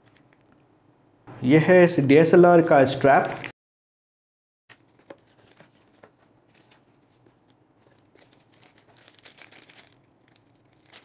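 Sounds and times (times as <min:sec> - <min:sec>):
plastic packaging crinkling: 0:04.7 - 0:11.0.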